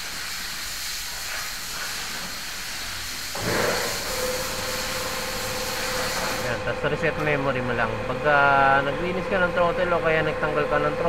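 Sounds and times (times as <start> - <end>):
steady hiss: 0.0 - 3.4
machine rumbling and humming: 3.4 - 11.0.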